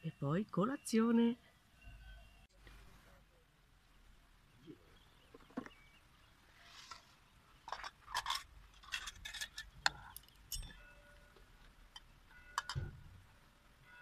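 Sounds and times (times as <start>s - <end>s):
spoon and glass jars clinking: 7.7s - 11.0s.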